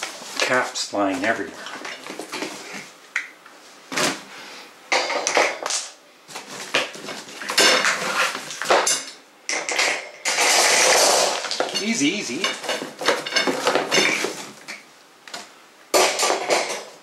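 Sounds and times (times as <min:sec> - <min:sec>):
wire shelves clinking: 0:06.5 - 0:14.5, 0:15.9 - 0:17.0.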